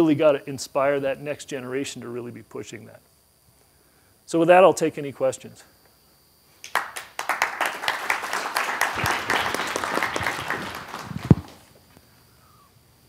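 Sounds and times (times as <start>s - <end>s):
audience applauding: 6.6s - 11.7s.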